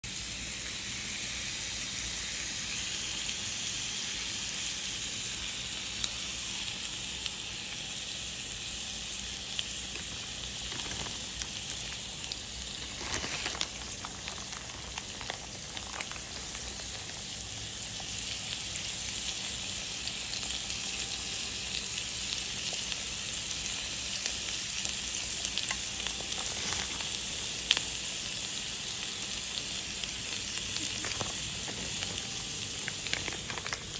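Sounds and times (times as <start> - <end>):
egg and meat sizzling: 0.1 - 33.9.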